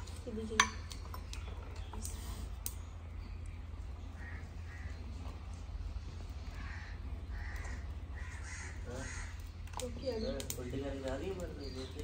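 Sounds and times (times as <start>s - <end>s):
low steady rumble: 0.0s - 12.0s
bird harsh calls: 3.3s - 10.5s.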